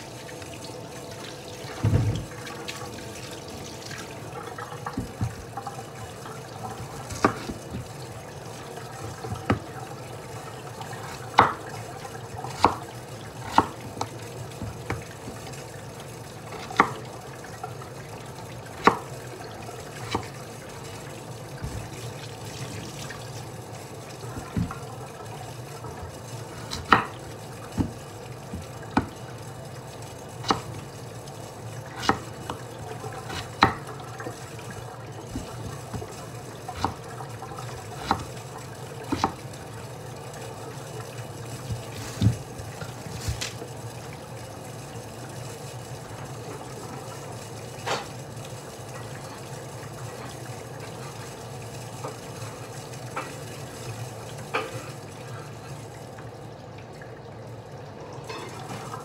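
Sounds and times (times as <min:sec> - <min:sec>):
knife cutting on wooden board: 0:06.8 - 0:07.8.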